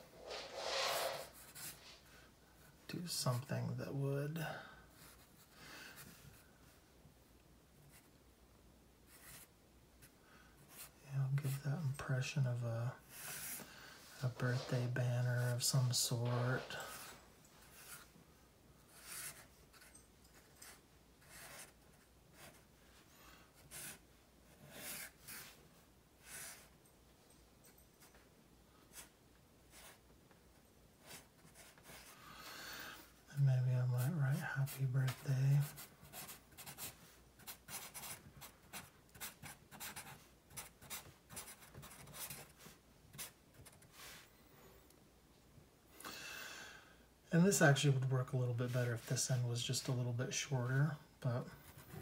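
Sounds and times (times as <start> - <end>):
marker scratching on paper: 0.2 - 1.8, 20.6 - 21.8, 34.6 - 44.2.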